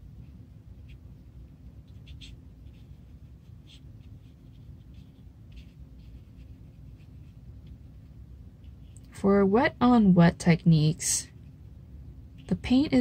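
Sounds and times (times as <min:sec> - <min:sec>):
steady low hum: 0:00.0 - 0:13.0
brush scratching on paper: 0:00.1 - 0:07.8.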